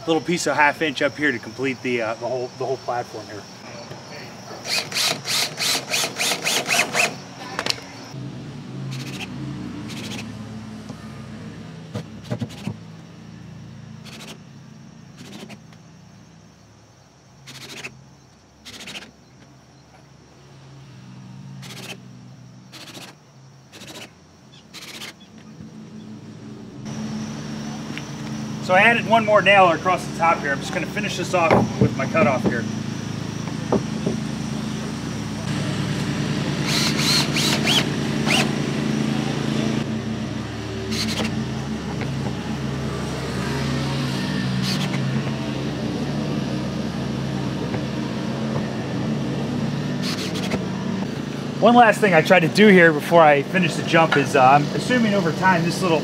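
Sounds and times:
motor droning: 0:02.2 - 0:16.7, 0:17.4 - 0:56.0
power tool fastening bursts: 0:04.6 - 0:07.9, 0:08.9 - 0:09.3, 0:09.9 - 0:10.3, 0:12.2 - 0:12.8, 0:14.0 - 0:14.4, 0:15.2 - 0:15.8, 0:17.4 - 0:18.0, 0:18.6 - 0:19.2, 0:21.6 - 0:22.0, 0:22.7 - 0:25.3, 0:36.6 - 0:38.6, 0:40.9 - 0:41.4, 0:44.6 - 0:45.1, 0:50.0 - 0:50.6
short high squeaks: 0:08.9 - 0:09.3, 0:09.9 - 0:10.4, 0:11.9 - 0:12.8, 0:14.0 - 0:14.5, 0:15.1 - 0:15.8, 0:17.4 - 0:18.0, 0:18.6 - 0:20.1, 0:21.5 - 0:25.5, 0:36.6 - 0:38.6, 0:44.2 - 0:45.1, 0:50.0 - 0:50.6.

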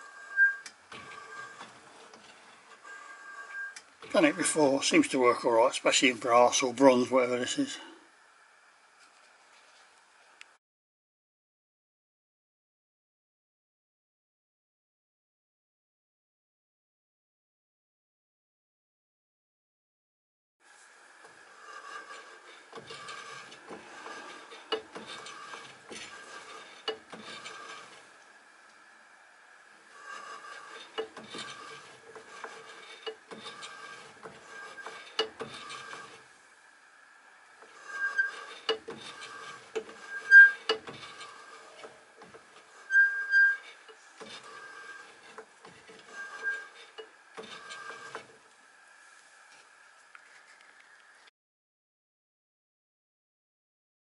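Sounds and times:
cutting tool scraping metal: 0:00.0 - 0:06.7, 0:21.3 - 0:28.2, 0:29.8 - 0:36.3, 0:37.6 - 0:48.4.

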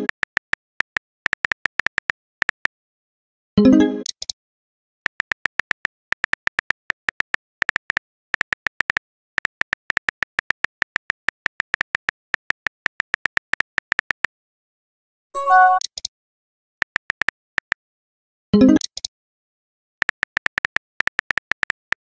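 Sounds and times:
keyboard typing clicks: 0:05.1 - 0:14.3, 0:20.0 - 0:22.0
message-sent sound: 0:15.4 - 0:15.9.

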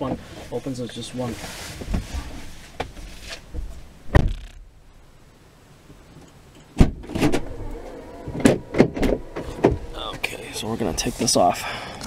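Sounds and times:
small rattles: 0:03.1 - 0:04.7
loud thump: 0:04.0 - 0:04.8, 0:06.8 - 0:07.5
knocks inside car cabin: 0:04.1 - 0:04.5.

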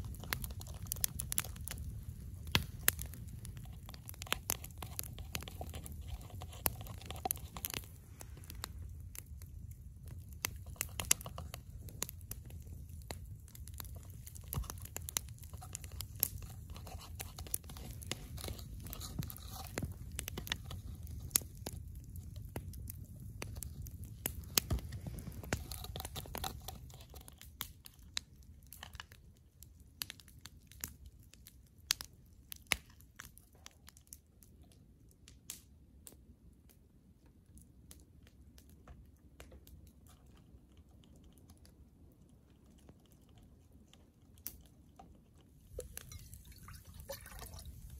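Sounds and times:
campfire crackling and popping: 0:00.0 - 0:47.9.

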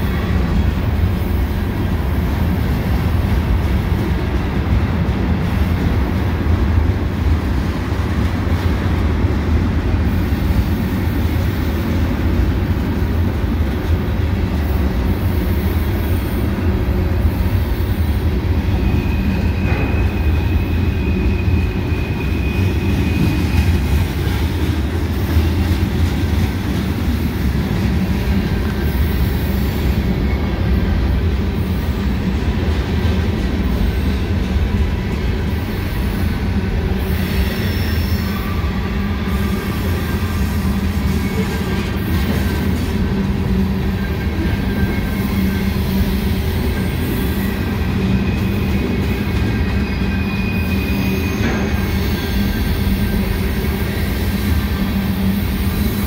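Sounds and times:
freight train wheels rumbling: 0:00.0 - 0:56.0
high wheel squeal: 0:18.6 - 0:24.6, 0:37.1 - 0:42.6, 0:43.8 - 0:54.9.

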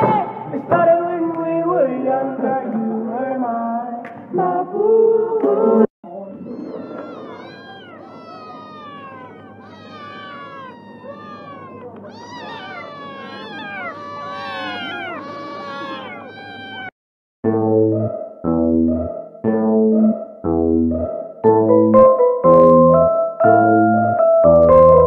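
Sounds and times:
cats meowing: 0:06.1 - 0:17.0.

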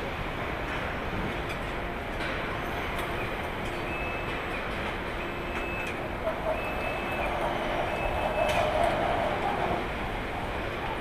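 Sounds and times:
steady machinery noise: 0:00.0 - 0:11.0
electronic warning beep: 0:03.8 - 0:04.4, 0:05.2 - 0:08.7.

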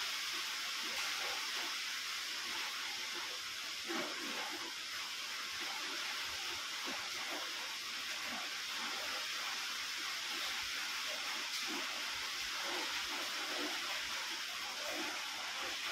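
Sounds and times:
steady hiss: 0:00.0 - 0:15.9.

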